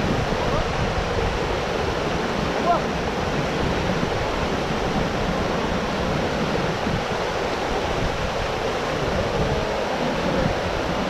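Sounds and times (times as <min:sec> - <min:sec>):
flowing water rushing: 0:00.0 - 0:11.0.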